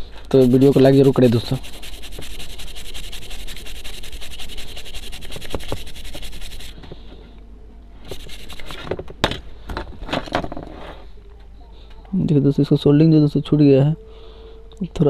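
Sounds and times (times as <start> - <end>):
scratchy rubbing on circuit board: 0.3 - 6.8, 8.1 - 8.9.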